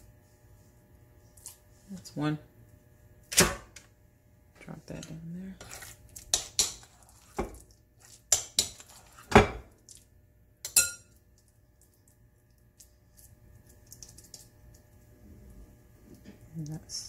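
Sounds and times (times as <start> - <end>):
soft sounds of mixture handled: 4.5 - 10.2, 11.1 - 17.0
metal spoon knocking glass bowl: 10.7 - 11.1.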